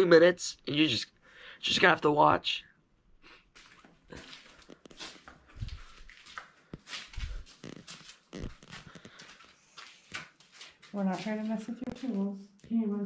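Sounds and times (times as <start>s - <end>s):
faint rustles and clicks: 3.5s - 12.8s.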